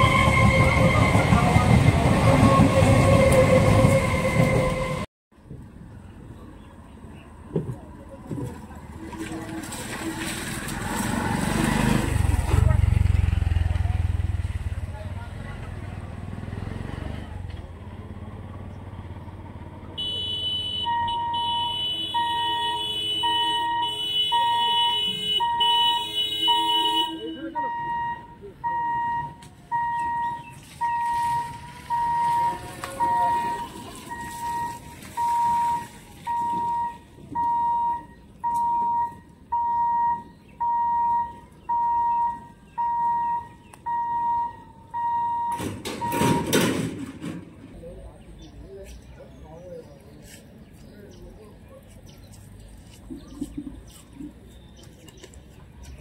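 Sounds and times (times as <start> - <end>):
pulsing low beeping tone: 27.6 - 46.5
barrier boom rattling clatter: 45.6 - 47.9.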